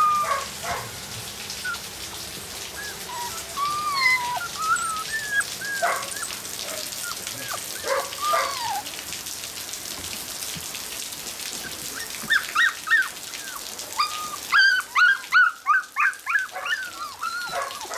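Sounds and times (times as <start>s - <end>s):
puppies whining and yelping: 0.0s - 0.9s, 1.6s - 2.0s, 2.6s - 8.9s, 11.6s - 17.9s.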